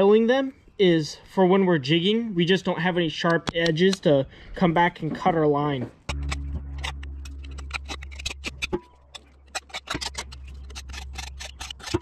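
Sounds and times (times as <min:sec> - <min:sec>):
low steady rumble: 0:06.1 - 0:12.0
hand file rasping on metal pipe: 0:06.2 - 0:12.0.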